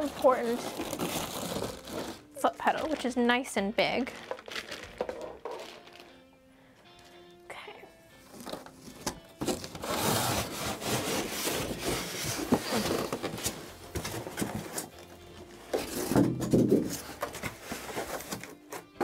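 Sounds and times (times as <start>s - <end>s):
foam scraping against cardboard: 9.6s - 14.9s.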